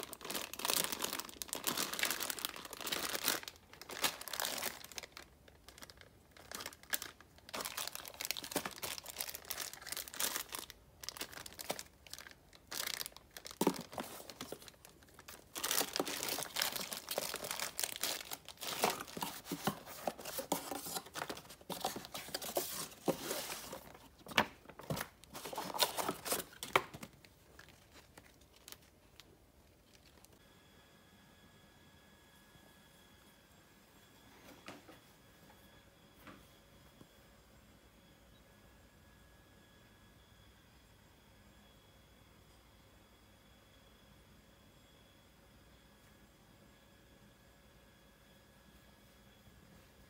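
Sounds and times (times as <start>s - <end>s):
plastic bags and paper rustling: 0.0s - 30.4s.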